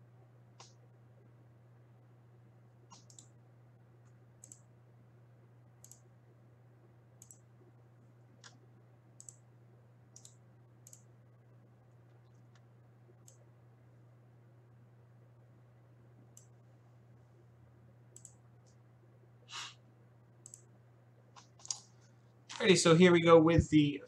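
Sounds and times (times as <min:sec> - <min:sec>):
low electrical hum: 0:00.0 - 0:24.0
computer mouse clicks: 0:00.6 - 0:00.8, 0:02.9 - 0:03.4, 0:04.0 - 0:04.7, 0:05.8 - 0:06.1, 0:07.2 - 0:07.5, 0:08.4 - 0:08.6, 0:09.2 - 0:09.4, 0:10.1 - 0:11.1, 0:12.0 - 0:13.4, 0:16.3 - 0:16.6, 0:18.1 - 0:18.8, 0:20.4 - 0:20.7, 0:21.4 - 0:21.9.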